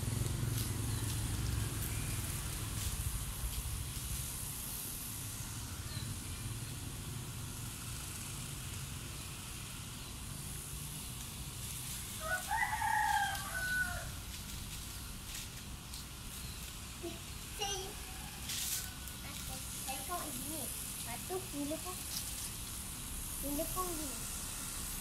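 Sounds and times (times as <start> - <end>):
steady low rumble: 0.0 - 6.6
rooster crowing: 12.2 - 14.2, 17.9 - 19.4.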